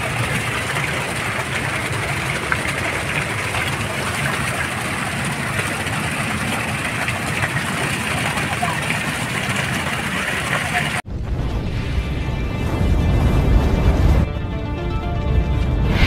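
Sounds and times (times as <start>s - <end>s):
fountain water splashing: 0.0s - 11.0s.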